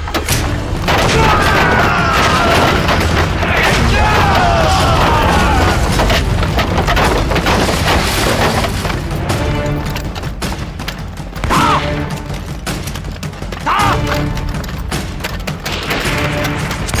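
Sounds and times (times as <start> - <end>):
dramatic background music: 0.0 - 17.0
rifle and machine-gun fire: 0.3 - 13.1
explosion booms: 0.6 - 8.5.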